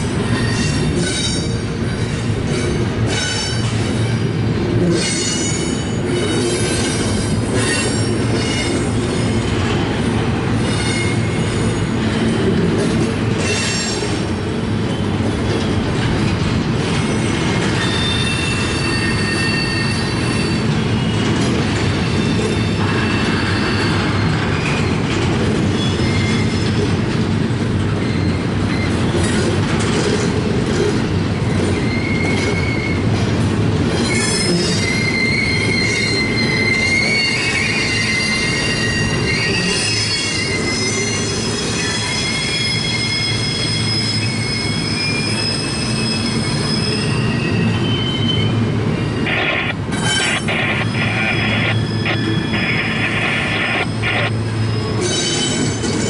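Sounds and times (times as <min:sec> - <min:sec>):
freight train wheels rumbling: 0:00.0 - 0:56.0
high-pitched wheel squeal: 0:17.1 - 0:21.2, 0:22.0 - 0:25.0, 0:34.0 - 0:56.0.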